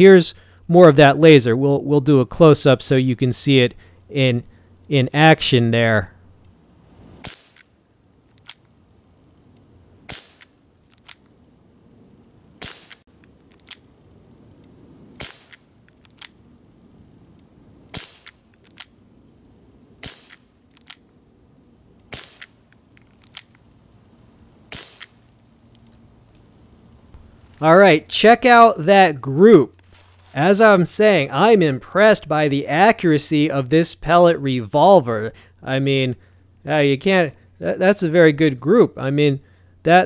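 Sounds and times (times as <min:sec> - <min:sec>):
pellet revolver shot cracks: 0:07.2 - 0:07.7, 0:10.1 - 0:10.5, 0:12.6 - 0:13.0, 0:15.2 - 0:15.6, 0:17.9 - 0:18.4, 0:20.0 - 0:20.4, 0:22.1 - 0:22.6, 0:24.7 - 0:25.2.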